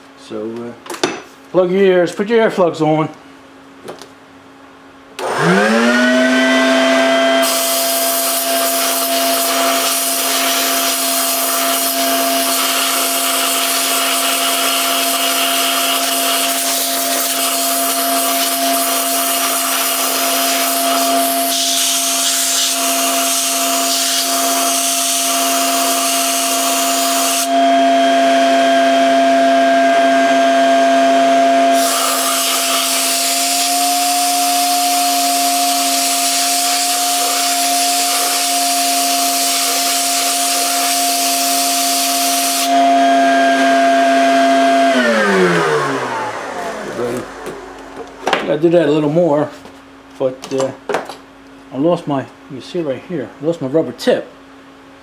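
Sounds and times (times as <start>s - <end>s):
vacuum cleaner motor whining: 5.2s - 49.0s
compressed air hissing: 31.8s - 33.7s.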